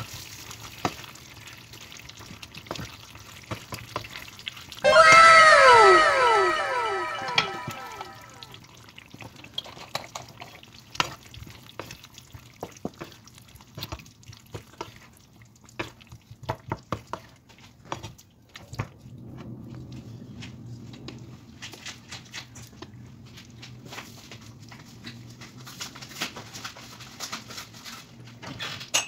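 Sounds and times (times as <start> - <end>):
echoing falling tones: 4.8 - 8.5.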